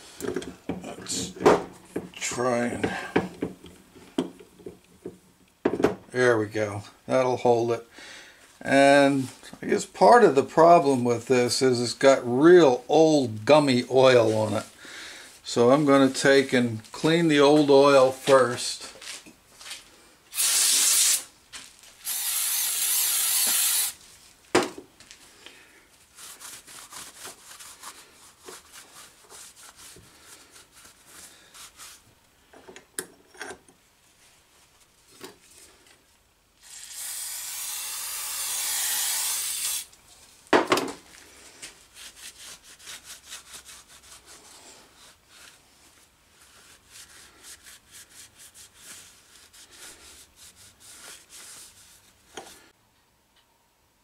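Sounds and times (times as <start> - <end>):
hissing spray: 20.4 - 21.3, 22.0 - 24.0
small scrapes: 41.1 - 52.8
towel rubbing metal: 41.8 - 52.7.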